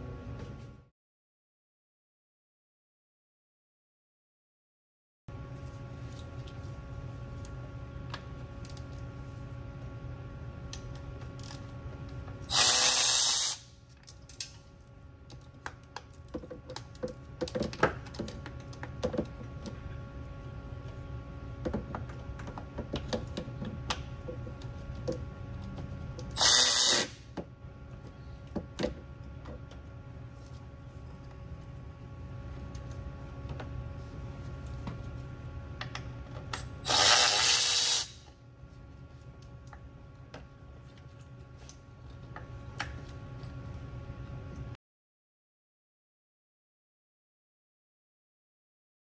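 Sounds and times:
electric ratchet spinning bolts: 12.5s - 13.7s, 26.2s - 27.2s, 36.8s - 38.2s.

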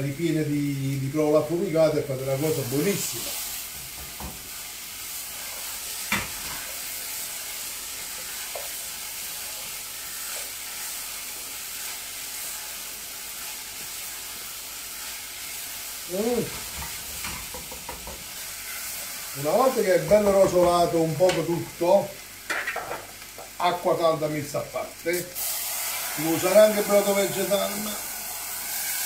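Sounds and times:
potatoes sizzling in oil: 0.0s - 29.0s.

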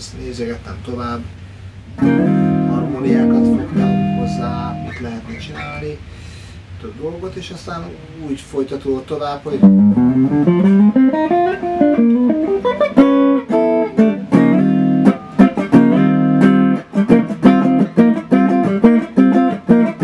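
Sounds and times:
clean electric guitar playing: 1.9s - 5.9s, 9.5s - 20.0s.

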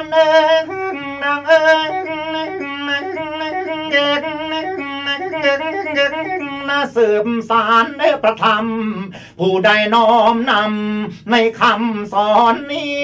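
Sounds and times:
man singing drawn-out notes: 0.0s - 13.0s.

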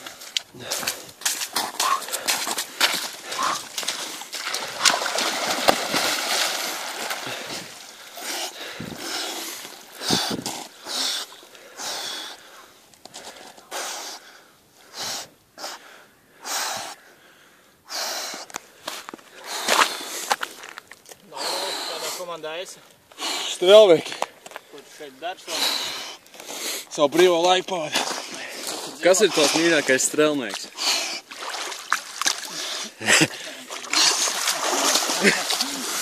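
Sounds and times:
water splashing: 0.0s - 10.4s, 27.8s - 36.0s
man breathing sharply: 7.2s - 20.4s, 25.4s - 26.9s.

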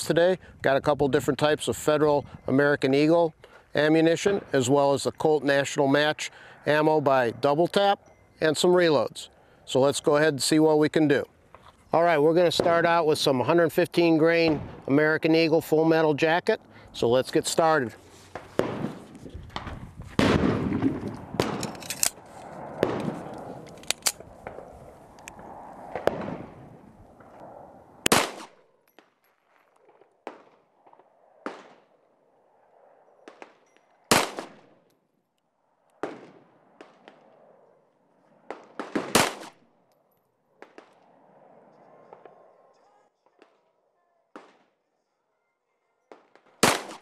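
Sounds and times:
pistol shots: 18.4s - 21.8s, 28.0s - 28.6s, 33.3s - 34.7s, 38.5s - 39.6s, 46.2s - 47.0s.

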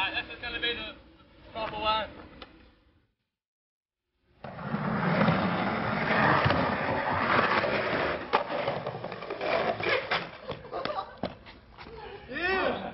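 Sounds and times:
skateboard wheels rolling on stone: 4.3s - 11.9s
skateboard clacking: 6.2s - 11.4s.

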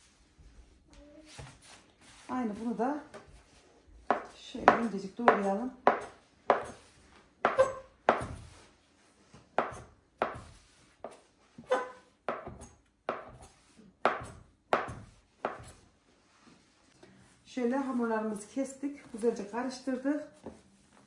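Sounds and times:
knife chopping dough on table: 4.0s - 8.7s, 9.5s - 15.9s.

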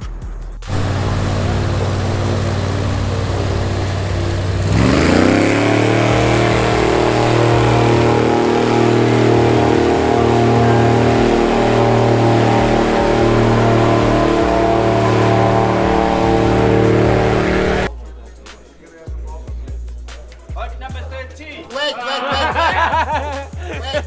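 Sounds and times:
engine running and revving: 0.6s - 17.9s.

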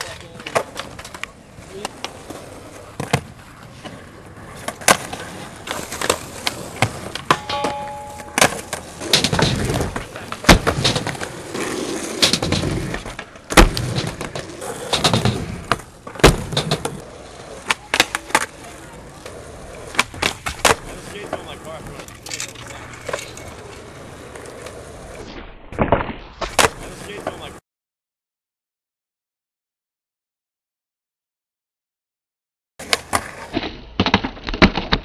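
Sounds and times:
skateboard wheels rolling on asphalt: 0.0s - 25.3s, 26.4s - 27.6s, 32.8s - 35.0s
skateboard pops and board slaps: 4.6s - 18.6s, 19.2s - 21.4s, 24.6s - 27.4s, 32.8s - 35.0s.

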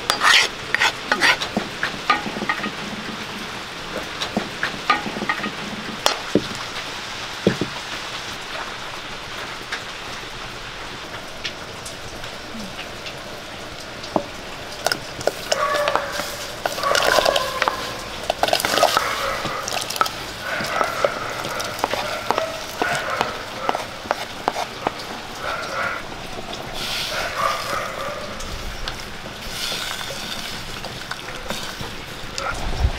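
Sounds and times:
wood fire crackling: 0.0s - 32.9s
spoon clicking on wooden bowl: 14.8s - 25.0s.

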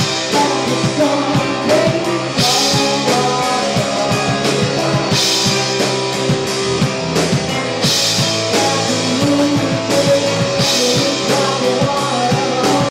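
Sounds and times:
rock band playing live: 0.0s - 12.9s.

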